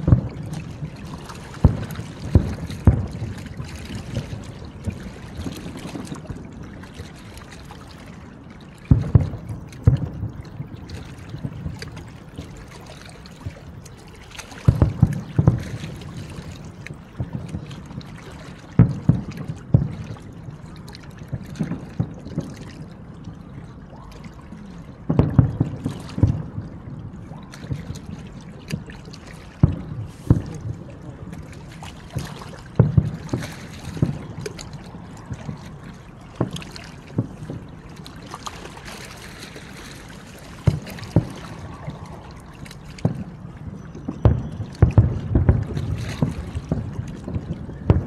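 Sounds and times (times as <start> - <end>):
distant fireworks booms: 0.0 - 6.4, 8.9 - 13.6, 14.6 - 20.1, 25.1 - 26.7, 29.6 - 31.4, 32.2 - 37.8, 40.5 - 48.0.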